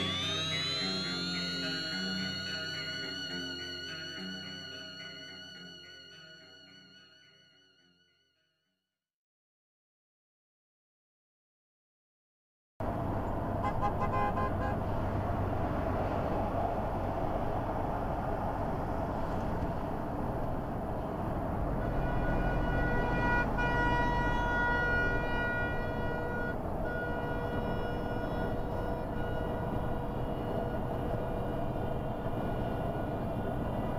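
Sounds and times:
steady pitched tone: 0:00.0 - 0:08.1
vehicle engine and tyre rumble: 0:12.8 - 0:33.9.

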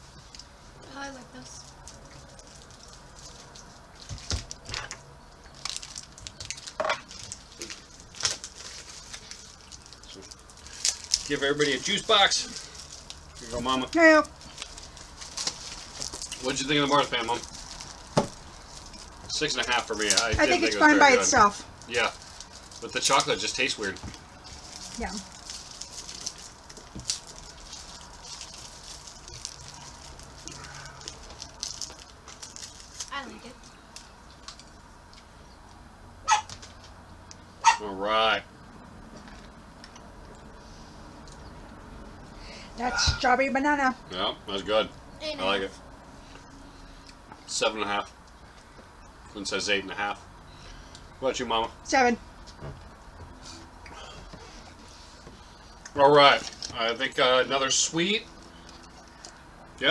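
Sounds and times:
plastic wrapper crinkling: 0:01.4 - 0:35.0.

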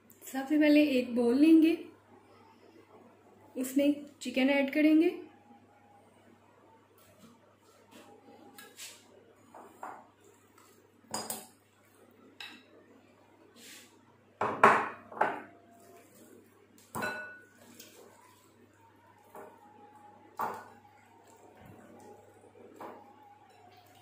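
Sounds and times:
glass bowls clinking: 0:16.9 - 0:17.9, 0:20.4 - 0:21.4.

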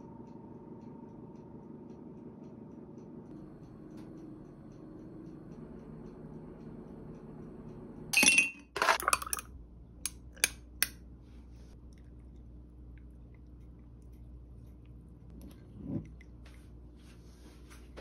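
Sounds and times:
ice cubes clinking in glass: 0:08.2 - 0:09.5.

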